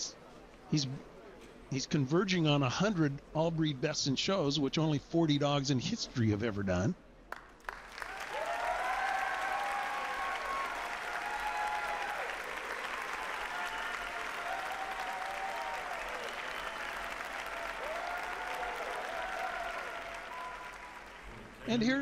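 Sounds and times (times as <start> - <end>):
audience applauding: 7.3 - 21.7.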